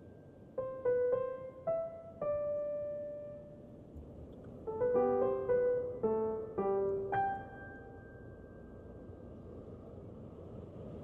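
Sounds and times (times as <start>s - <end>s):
piano notes: 0.0s - 3.8s, 4.6s - 9.1s.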